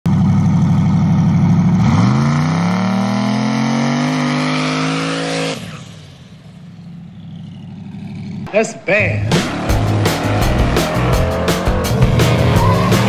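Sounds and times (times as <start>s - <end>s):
tires spinning: 0.5s - 8.5s, 9.2s - 13.0s
pickup engine revving: 1.1s - 6.3s, 9.1s - 13.0s.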